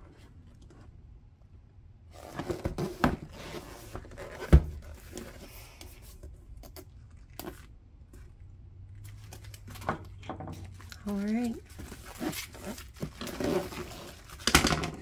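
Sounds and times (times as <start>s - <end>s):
cardboard box rubbing and scraping: 2.1s - 5.7s, 11.7s - 14.3s.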